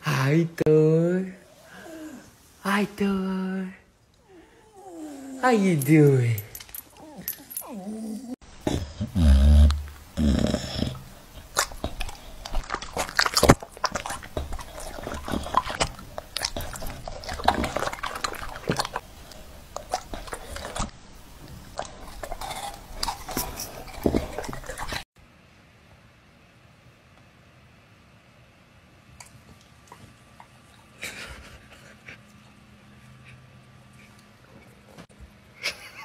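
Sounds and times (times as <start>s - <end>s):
dog chewing and smacking: 11.3s - 25.0s.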